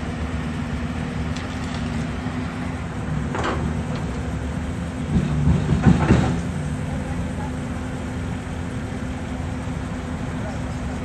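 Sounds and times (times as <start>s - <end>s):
excavator diesel engine running: 0.0s - 11.0s
loud metal clanks and knocks: 5.0s - 6.5s.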